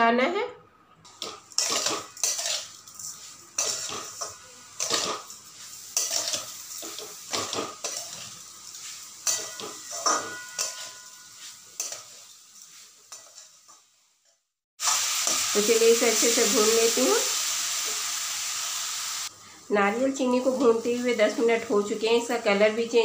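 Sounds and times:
metal spatula scraping a pan: 0:01.2 - 0:13.6.

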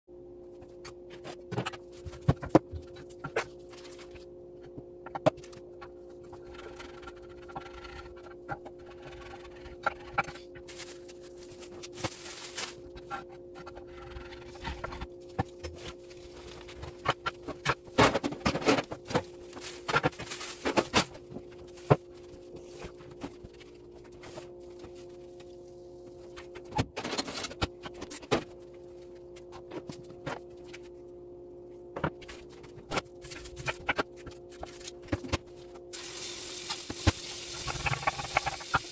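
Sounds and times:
steady low hum: 0:00.1 - 0:38.9.

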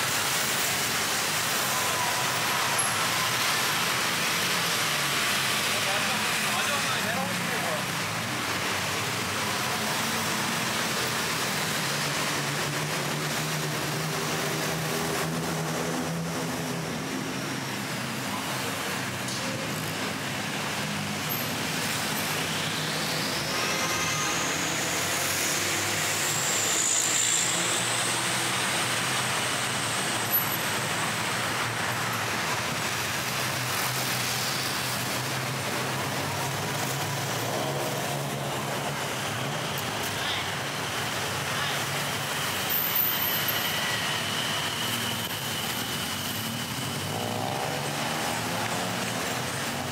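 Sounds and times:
busy road traffic: 0:00.0 - 0:49.9.

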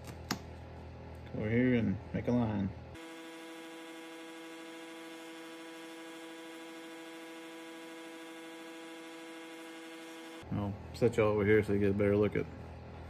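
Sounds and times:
steady buzzing tone: 0:03.0 - 0:10.5.

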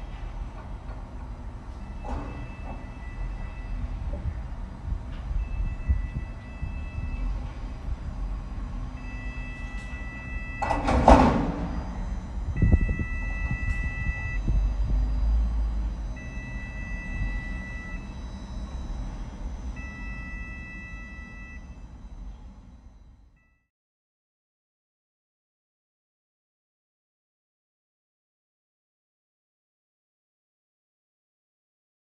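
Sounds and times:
low rumble: 0:00.0 - 0:23.3
crane warning two-pitch tone: 0:01.7 - 0:23.7.

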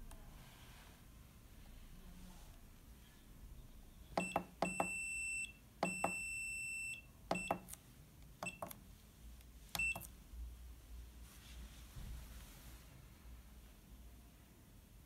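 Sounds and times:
keypad button clicks: 0:07.3 - 0:07.8, 0:08.4 - 0:08.8, 0:09.7 - 0:10.1.

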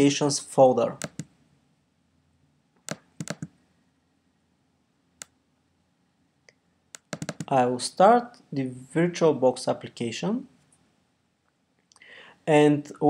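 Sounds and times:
computer mouse clicks: 0:01.0 - 0:01.3, 0:02.8 - 0:03.6, 0:06.9 - 0:07.5.

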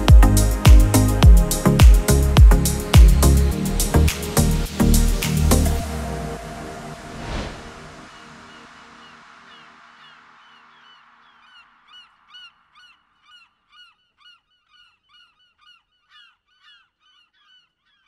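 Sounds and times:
music: 0:00.0 - 0:11.0
faint rapid bird calls: 0:08.0 - 0:18.0.

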